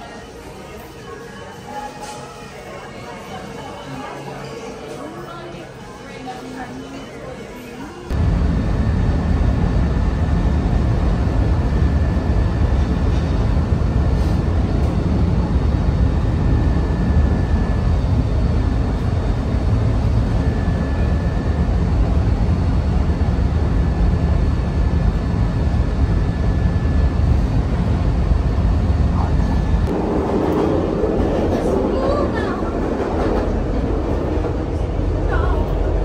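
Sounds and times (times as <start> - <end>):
faint high whine: 8.1 - 30.1.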